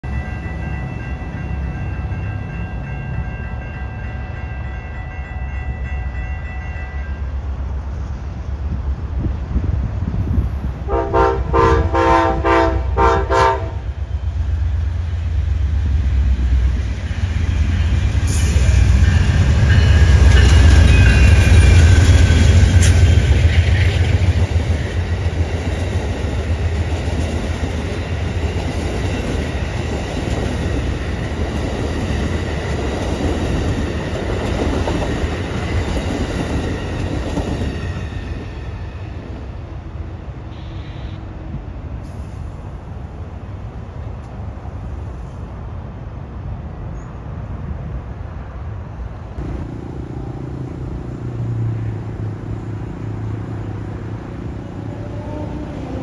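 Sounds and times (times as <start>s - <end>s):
diesel locomotive rumble and whine: 0.0s - 56.0s
train cars clattering past: 10.4s - 40.6s
train horn blasts: 10.8s - 14.0s, 40.4s - 41.5s, 54.8s - 56.0s.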